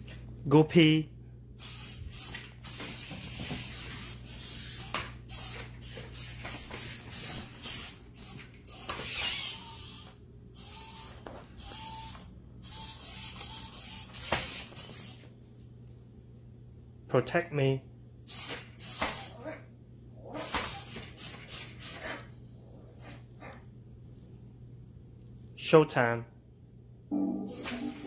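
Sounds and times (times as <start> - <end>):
robot toy motors whirring: 1.6 - 15.2, 18.3 - 19.4
short high electronic tones: 27.1 - 28.0.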